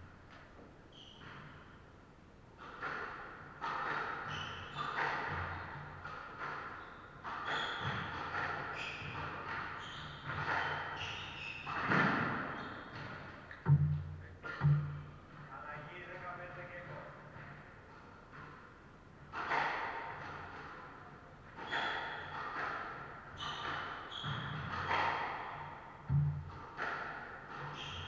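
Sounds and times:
shoes squeaking on wooden floor: 0.6 - 1.8, 2.6 - 15.6, 19.3 - 28.0
squash ball cracking off rackets: 19.2 - 28.0.

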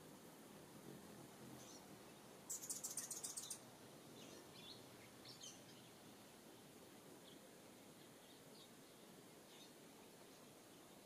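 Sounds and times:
faint high bird chirps: 1.6 - 6.3, 7.2 - 11.0.

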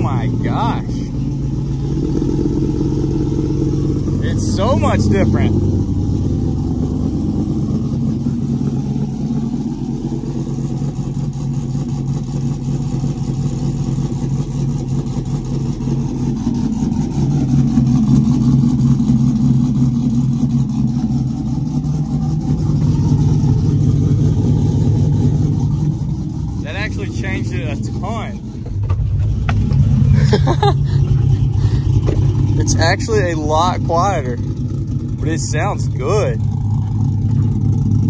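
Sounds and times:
truck engine idling: 0.0 - 38.0.

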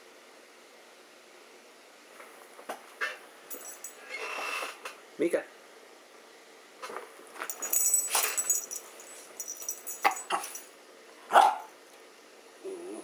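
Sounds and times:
metal collar tags jingling: 3.5 - 4.0, 7.5 - 10.7
dog barking: 11.3 - 11.7.

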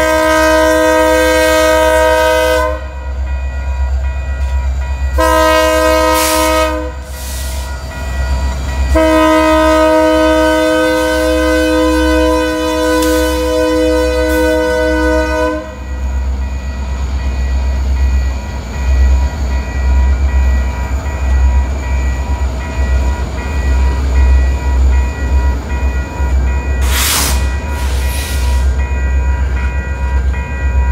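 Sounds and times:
train horn chord: 0.0 - 3.0, 5.2 - 7.1, 8.9 - 15.8
freight train wheels rumbling: 0.0 - 30.9
crossing signal bell dinging: 1.7 - 30.9
bursts of hiss: 26.8 - 28.7.

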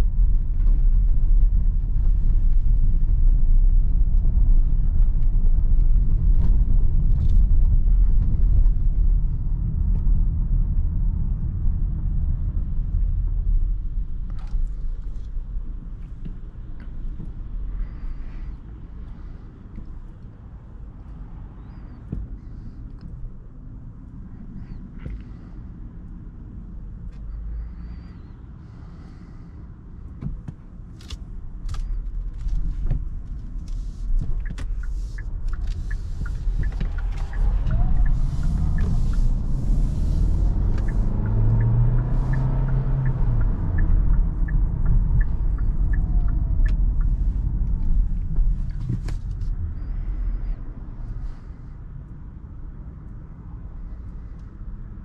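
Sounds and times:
tyre noise on wet road: 31.7 - 48.1
car engine accelerating: 31.7 - 51.5.

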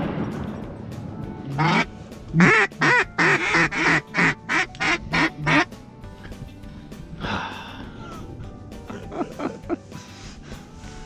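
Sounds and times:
duck call quacks: 1.5 - 5.7.

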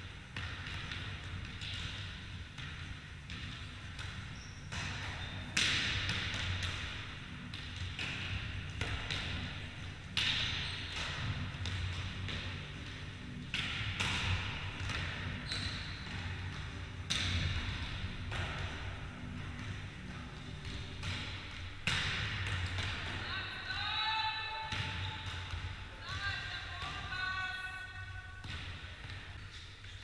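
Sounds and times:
steady low hum: 0.0 - 23.3
volleyballs smacking on wooden floor: 0.3 - 23.3, 24.6 - 26.2, 28.4 - 29.7.

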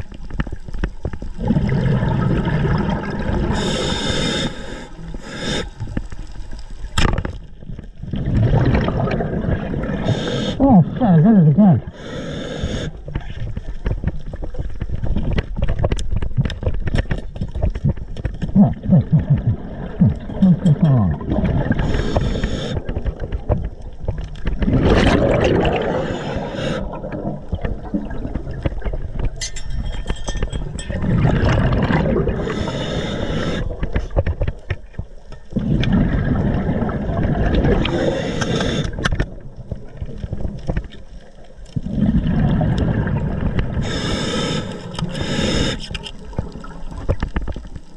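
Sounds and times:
underwater bubble bursts: 0.0 - 7.0, 7.6 - 12.1, 12.8 - 29.4, 30.6 - 34.7, 35.4 - 47.9
underwater clicks and knocks: 6.9 - 9.2, 13.1 - 18.6, 19.2 - 21.6, 22.8 - 25.7, 27.0 - 32.2, 33.8 - 36.2, 38.9 - 41.1, 45.8 - 47.9.

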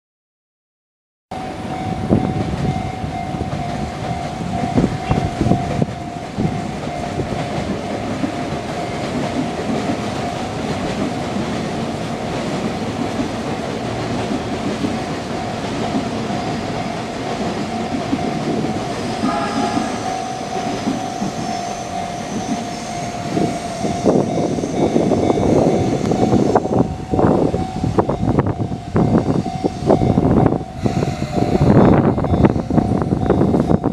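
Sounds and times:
crossing alarm bell ringing: 1.3 - 33.9
train rumble: 1.3 - 33.9
train wheels clattering over rail joints: 2.2 - 26.6.

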